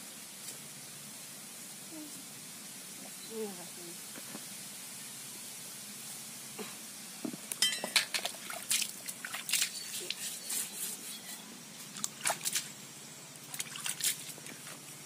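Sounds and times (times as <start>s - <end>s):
splashing and sloshing in bucket: 7.9s - 10.4s, 11.8s - 12.7s, 13.4s - 15.0s
water spilling onto stone: 13.4s - 14.9s.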